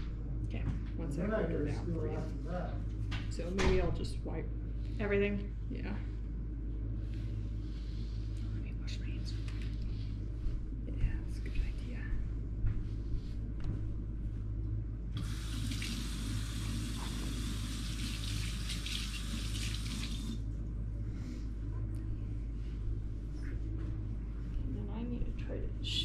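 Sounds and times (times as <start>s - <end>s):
low room hum: 0.0s - 26.0s
faucet water running: 15.2s - 20.4s.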